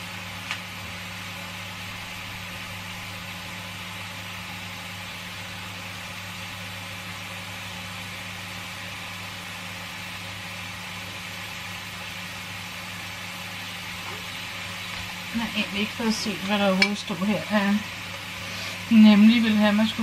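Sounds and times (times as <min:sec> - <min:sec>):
constant low hum: 0:00.0 - 0:20.0
steak sizzling in a grill pan: 0:11.2 - 0:20.0.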